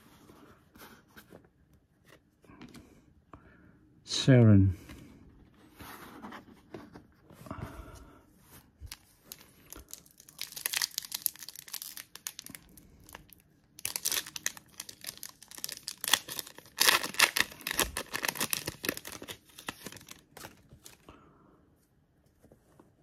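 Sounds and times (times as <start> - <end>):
wrapper tearing and crinkling: 8.9 - 21.0.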